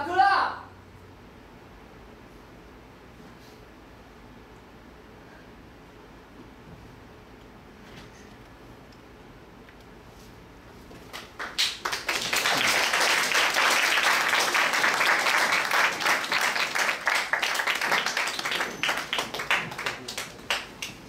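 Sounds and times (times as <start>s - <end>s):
audience applauding: 11.1s - 21.0s.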